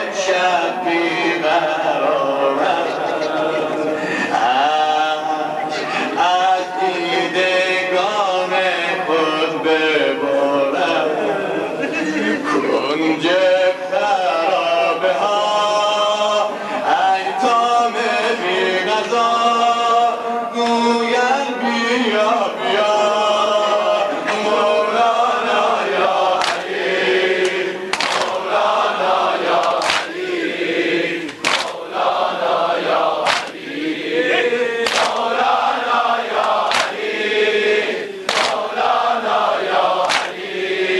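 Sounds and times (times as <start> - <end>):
men chanting a lament: 0.0 - 40.9
hands slapping bare chests: 26.4 - 26.7, 27.4 - 28.4, 29.6 - 30.2, 31.3 - 31.8, 33.2 - 33.6, 34.8 - 35.3, 36.4 - 37.0, 38.3 - 38.7, 40.0 - 40.4.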